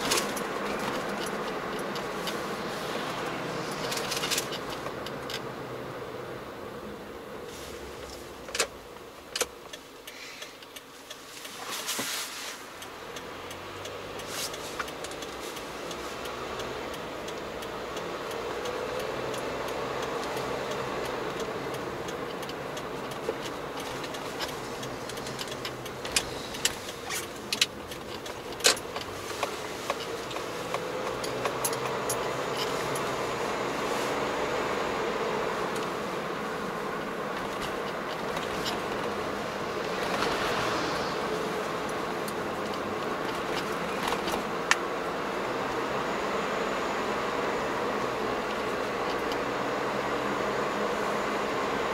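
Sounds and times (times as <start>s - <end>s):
sharp clicks and rattles: 0.0s - 5.5s, 12.8s - 45.9s
car engine and road noise: 0.0s - 51.9s.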